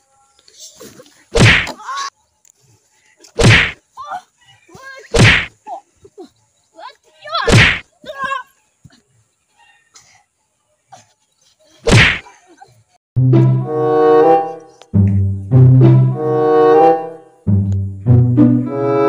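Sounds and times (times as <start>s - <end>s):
punch and kick whacks: 1.4s - 1.8s, 3.4s - 3.8s, 5.2s - 5.5s, 7.5s - 7.8s, 11.9s - 12.2s.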